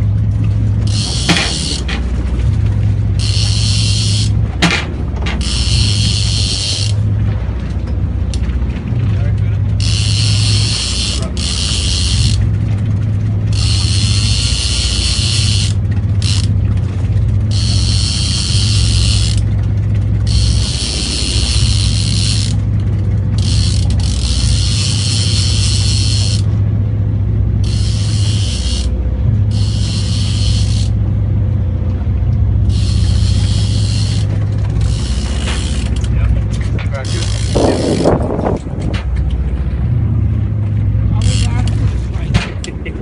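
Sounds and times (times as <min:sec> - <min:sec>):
boat engine hum: 0:00.0 - 0:43.0
fishing reel buzzing: 0:00.8 - 0:02.0, 0:02.9 - 0:04.6, 0:05.3 - 0:07.1, 0:09.8 - 0:12.6, 0:13.3 - 0:26.6, 0:27.6 - 0:31.0, 0:32.6 - 0:36.2, 0:36.9 - 0:38.2, 0:41.1 - 0:41.8.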